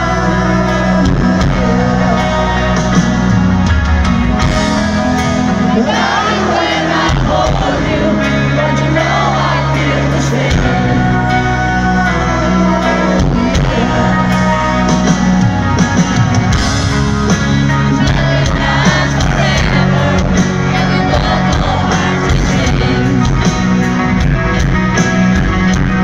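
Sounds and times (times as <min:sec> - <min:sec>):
person singing: 0:00.0 - 0:24.0
live rock ballad: 0:00.0 - 0:26.0
crowd shouting: 0:04.2 - 0:23.3.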